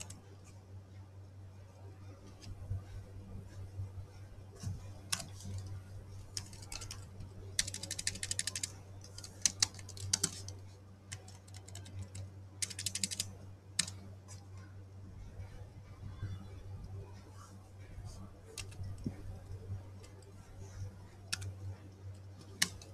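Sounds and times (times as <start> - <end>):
computer keyboard typing: 0.0 - 0.2, 4.9 - 14.1, 18.1 - 22.9
steady low hum: 0.0 - 22.9.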